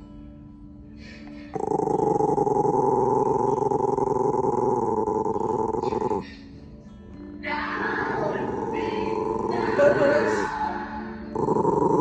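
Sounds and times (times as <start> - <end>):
small dog growling: 1.5 - 6.6, 7.8 - 10.5, 11.3 - 12.0.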